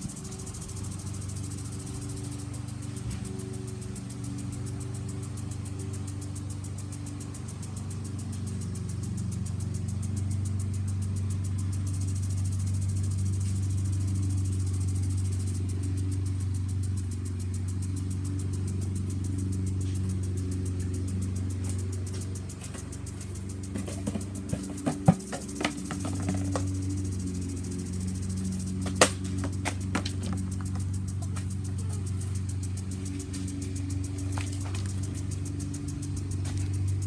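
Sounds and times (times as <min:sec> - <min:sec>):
faint high hiss: 0:00.0 - 0:23.7
lawn mower engine running: 0:00.0 - 0:37.0.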